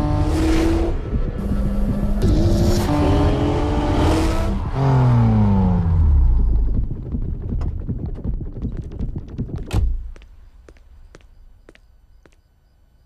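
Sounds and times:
car engine rumbling: 0.0s - 9.8s.

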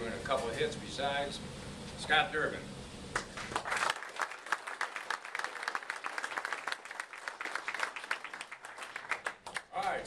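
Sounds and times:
audience applauding: 3.2s - 9.9s.

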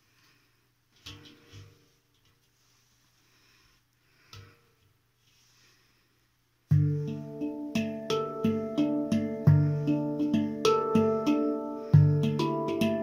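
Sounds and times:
deep handpan bass notes: 6.7s - 13.0s
handpan notes ringing: 6.7s - 13.0s.

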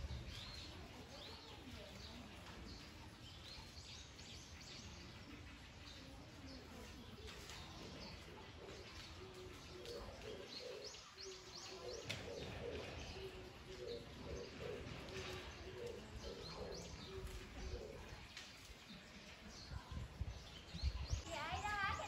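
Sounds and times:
bird cooing: 6.1s - 18.3s.

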